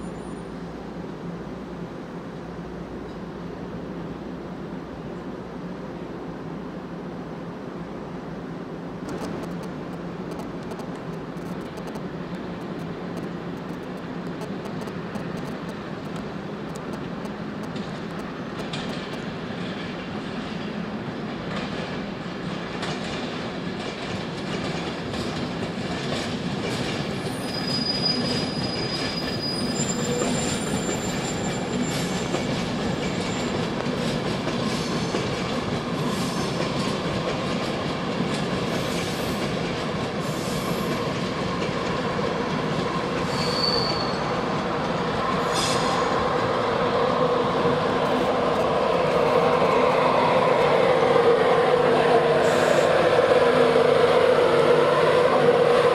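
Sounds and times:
passenger trains passing: 0:00.0 - 0:55.9
high wheel squeal: 0:27.2 - 0:32.4, 0:33.1 - 0:33.6, 0:36.0 - 0:36.6, 0:43.2 - 0:44.4, 0:45.4 - 0:46.2, 0:52.4 - 0:53.0.

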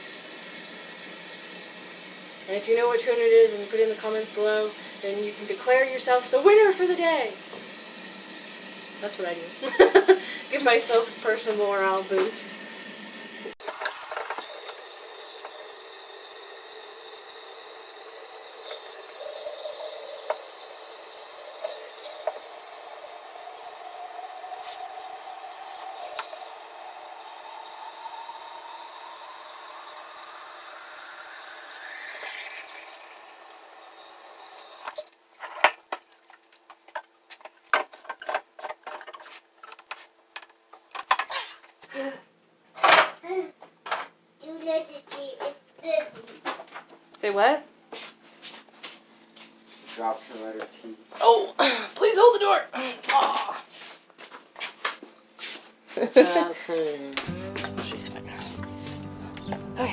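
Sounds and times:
tap water running into sink: 0:00.0 - 0:35.1
plastic items clicking and knocking: 0:35.4 - 0:41.4.

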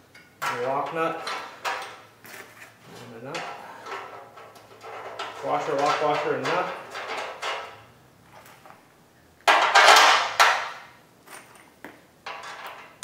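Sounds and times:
steel hardware clattering: 0:00.1 - 0:02.1, 0:03.2 - 0:08.8, 0:09.5 - 0:10.8, 0:12.2 - 0:13.0.

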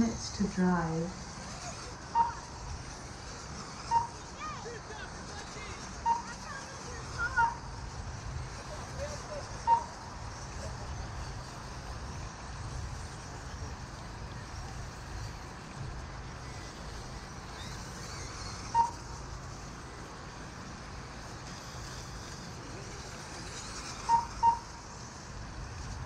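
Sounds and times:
short electronic beeps: 0:24.0 - 0:24.8.

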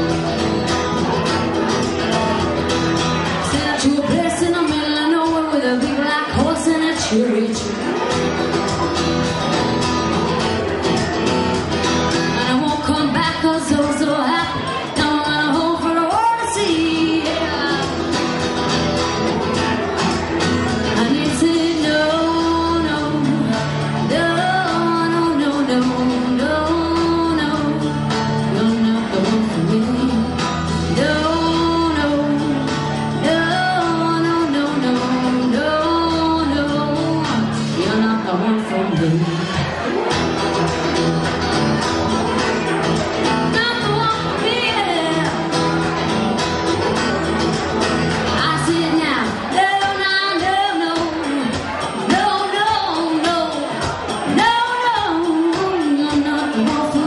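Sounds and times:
amplified electric guitar: 0:00.0 - 0:57.0
woman singing into microphone: 0:03.2 - 0:08.0, 0:12.2 - 0:18.4, 0:20.7 - 0:39.8, 0:43.2 - 0:45.8, 0:48.2 - 0:57.0.

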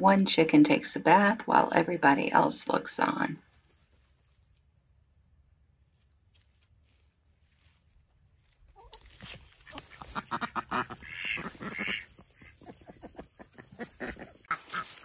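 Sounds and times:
ducks quacking: 0:09.6 - 0:15.0.

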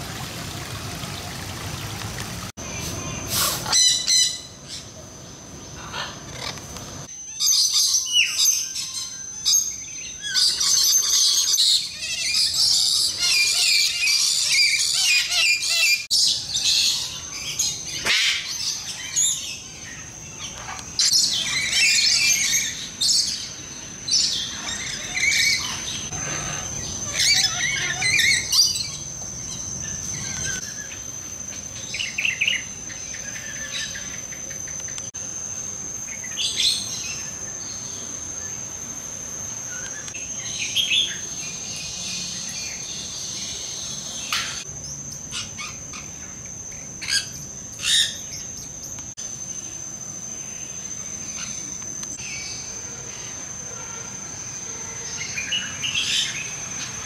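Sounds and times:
birds chirping and calling: 0:02.7 - 0:05.0, 0:05.6 - 0:35.1, 0:39.6 - 0:49.0.

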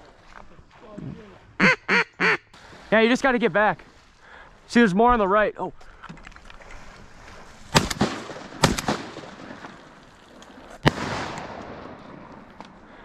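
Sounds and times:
shotgun blasts with echo: 0:07.7 - 0:09.8, 0:10.8 - 0:12.9.

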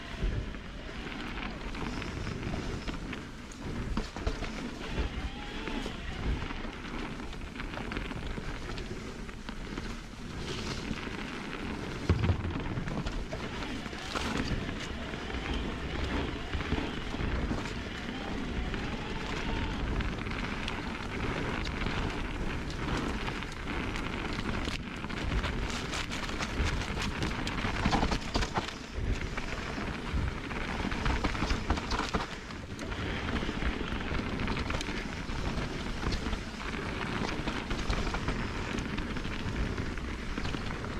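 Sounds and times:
bike tyre noise on dirt trail: 0:00.0 - 0:40.9
bike knocking over bumps: 0:11.0 - 0:40.9.

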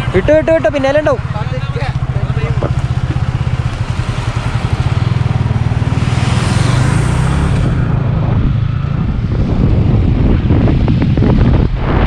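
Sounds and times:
motorcycle engine running: 0:00.0 - 0:11.8
wind on microphone: 0:02.6 - 0:12.0.

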